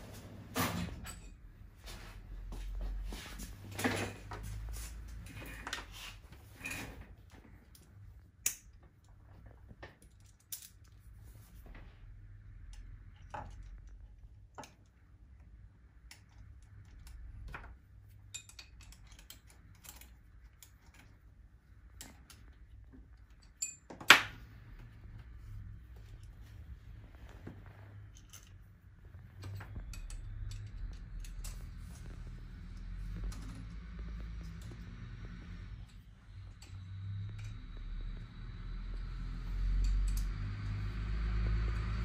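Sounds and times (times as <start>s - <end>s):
metal parts clinking: 10.0s - 11.0s.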